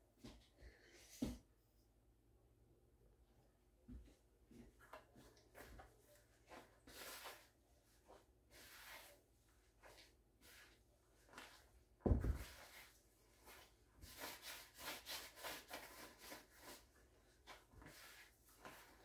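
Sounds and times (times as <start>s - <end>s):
dull thump: 12.0s - 12.5s.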